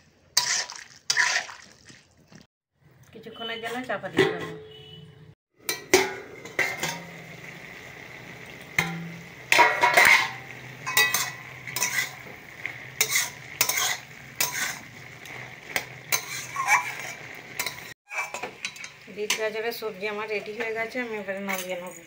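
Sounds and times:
metal spatula scraping a pan: 0.4s - 1.6s, 9.5s - 19.5s
vegetables sizzling: 5.6s - 22.0s
metal lid clack: 5.7s - 7.1s, 8.8s - 12.0s.

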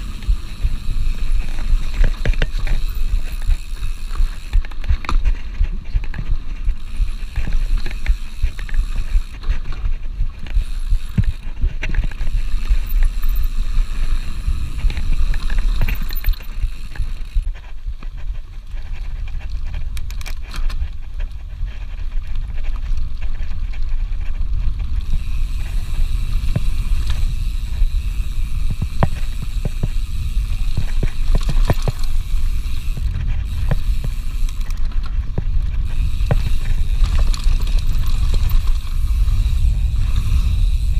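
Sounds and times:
bike rattling over bumps: 0.0s - 40.9s
bike tyres on dirt: 0.0s - 40.9s
wind rumble on microphone: 0.0s - 40.9s.

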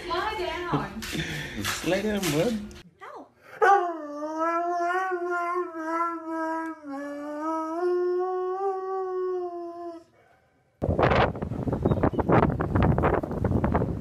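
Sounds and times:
dog howling: 3.6s - 10.1s
wind buffeting microphone: 10.8s - 14.0s.

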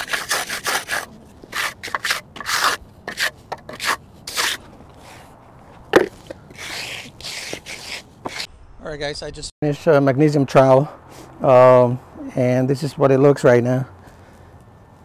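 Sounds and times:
trowel scraping wet concrete: 0.0s - 5.2s, 5.9s - 8.5s.

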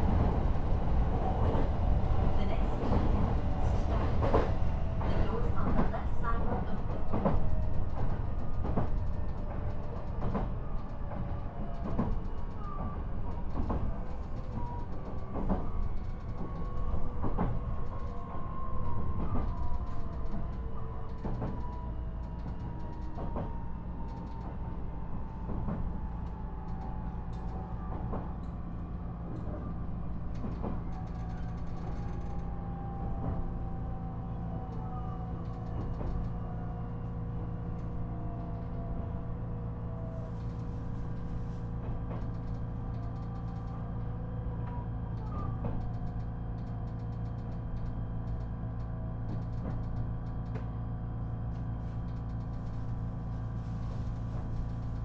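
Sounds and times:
wheels rumbling on rails: 0.0s - 55.0s
rail-joint clicks: 13.3s - 18.3s, 19.2s - 23.5s, 41.9s - 50.8s.

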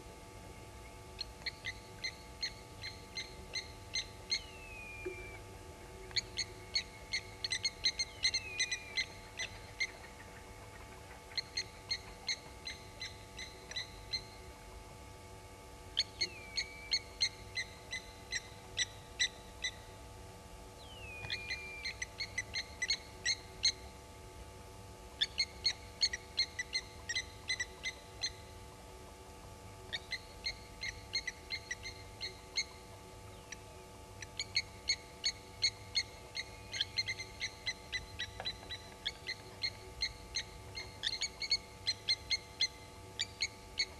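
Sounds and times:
lapwing metallic alarm calls: 6.1s - 14.4s, 20.8s - 23.9s, 25.2s - 28.5s, 29.9s - 32.8s, 34.3s - 43.9s.

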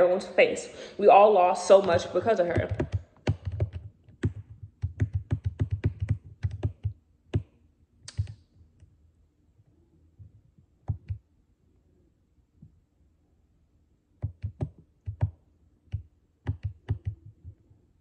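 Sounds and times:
computer keyboard typing: 1.8s - 7.5s, 8.1s - 8.4s, 10.8s - 11.2s, 14.2s - 17.6s.

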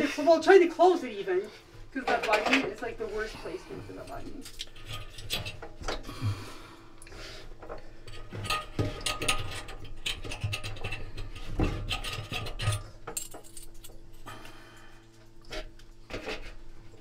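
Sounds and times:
metal parts clinking and scraping: 8.1s - 14.0s.

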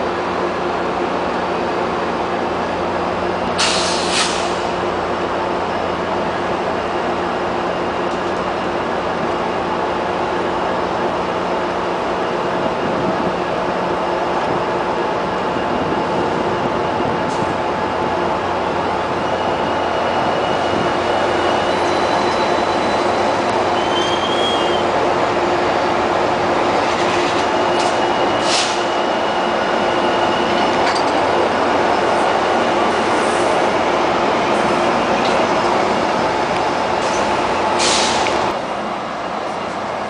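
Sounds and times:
train wheels rumbling: 0.0s - 40.0s
high wheel squeak: 19.1s - 25.6s, 26.7s - 32.2s
short squeals or clicks: 19.4s - 24.9s.

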